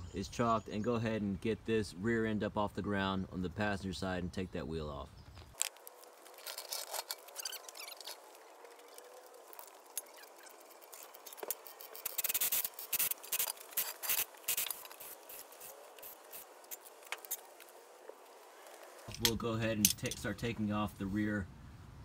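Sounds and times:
floor jack squeaking: 6.3 - 17.6
metallic clicks and clinks: 19.1 - 20.3.

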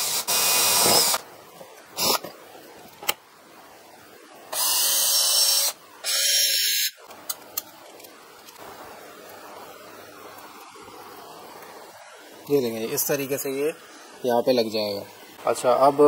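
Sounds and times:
electric drill running: 0.0 - 1.2, 4.5 - 6.9.

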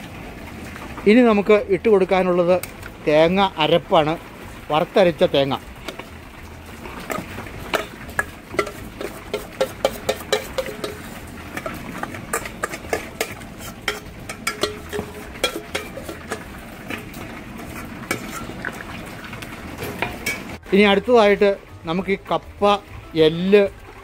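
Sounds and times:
ladle stirring thick mixture: 2.5 - 20.7
metal spoon clinking on steel: 7.7 - 16.5.

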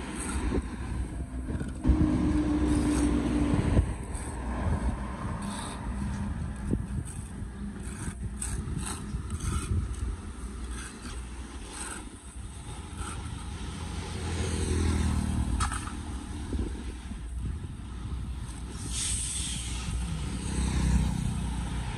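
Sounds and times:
motor vehicle passing: 0.0 - 18.2, 18.8 - 21.9
road traffic: 0.0 - 21.9.

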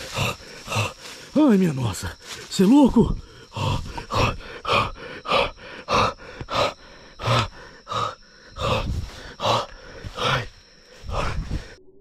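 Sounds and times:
heavy grunting gasps: 3.3 - 11.5.

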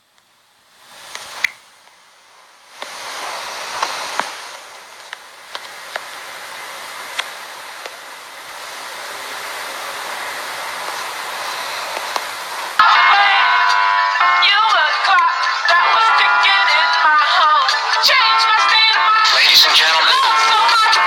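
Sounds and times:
steady rushing hiss: 0.0 - 12.8, 17.7 - 21.0.

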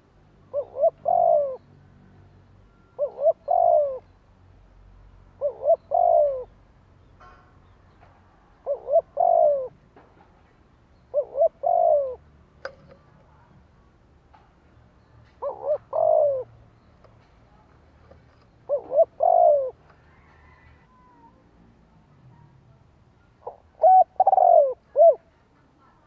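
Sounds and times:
dove cooing: 0.0 - 1.6, 2.9 - 4.1, 5.4 - 6.6, 8.5 - 9.8, 11.1 - 12.2, 15.4 - 16.6, 18.7 - 21.4, 23.4 - 25.4.

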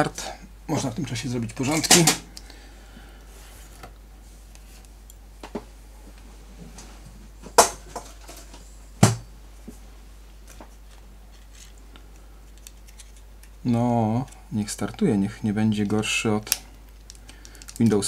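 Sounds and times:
small objects clicking on desk: 16.5 - 18.0.

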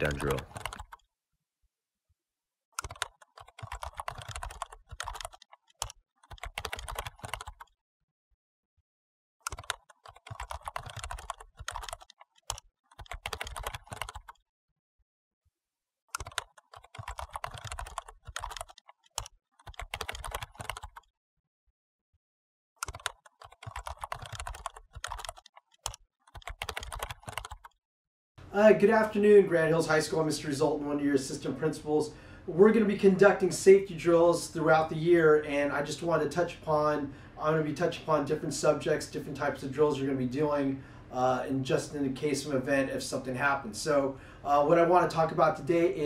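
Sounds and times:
fast typing on computer keyboard: 0.0 - 1.1, 2.8 - 7.8, 9.5 - 14.4, 16.2 - 21.1, 22.8 - 27.8.

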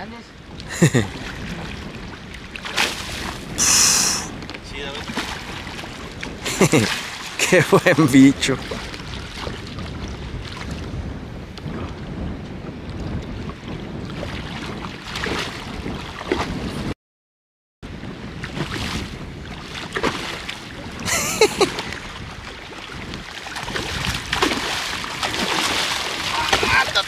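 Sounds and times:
wind buffeting microphone: 0.0 - 17.0, 17.9 - 27.0
water sloshing around legs: 18.4 - 27.0.

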